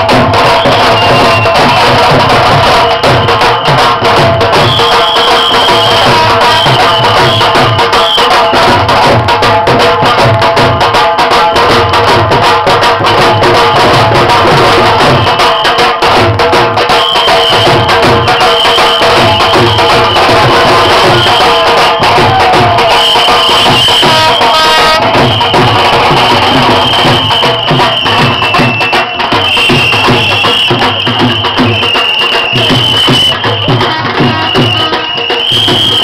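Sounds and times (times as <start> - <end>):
dhol drums beaten with sticks: 0.0 - 36.0.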